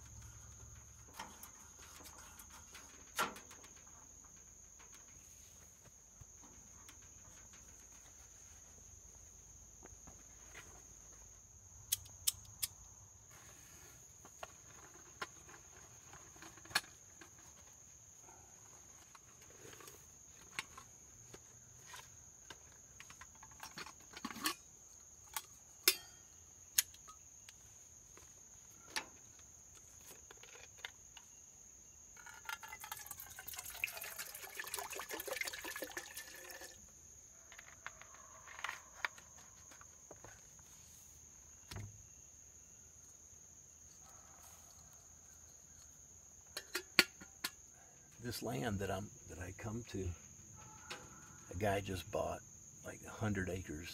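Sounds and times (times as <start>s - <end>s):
insect chirring: 0.0s - 53.9s
metal percolator parts clinking: 23.1s - 27.2s, 32.2s - 36.8s, 46.5s - 47.6s
water pouring into percolator: 32.4s - 36.8s.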